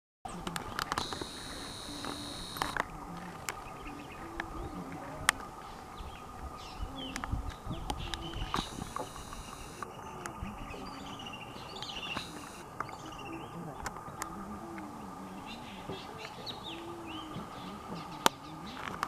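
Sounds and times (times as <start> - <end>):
bird chirps: 0.3 - 19.0
insect drone: 0.3 - 19.0
sharp clicks: 0.4 - 3.6, 7.9 - 10.4, 11.8 - 13.0
high insect buzz: 0.6 - 4.6, 8.1 - 9.9, 11.9 - 14.0.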